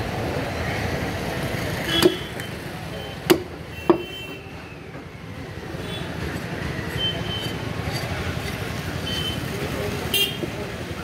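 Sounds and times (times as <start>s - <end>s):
street traffic: 0.0s - 11.0s
cleaver chopping on wooden block: 3.2s - 4.0s.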